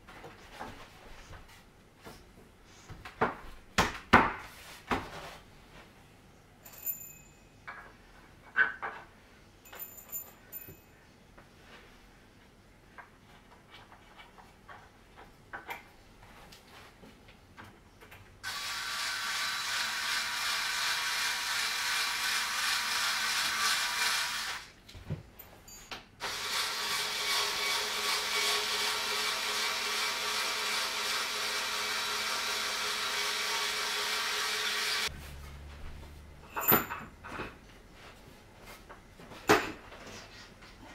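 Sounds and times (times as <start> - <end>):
power tool motor running: 18.4 - 24.7, 26.2 - 35.1.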